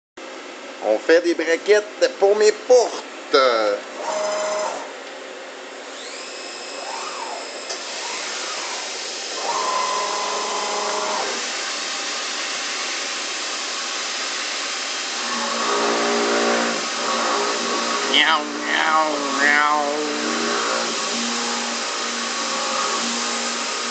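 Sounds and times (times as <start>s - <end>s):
spindle drilling hum: 3.9s - 4.9s, 5.8s - 23.9s
mill motor whining: 4.0s - 4.9s, 5.8s - 12.4s, 15.1s - 23.9s.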